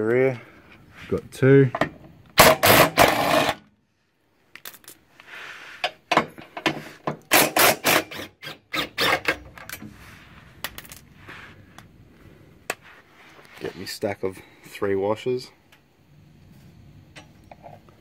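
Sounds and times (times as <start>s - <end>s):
impact wrench hammering: 2.4s - 3.6s, 6.1s - 8.2s.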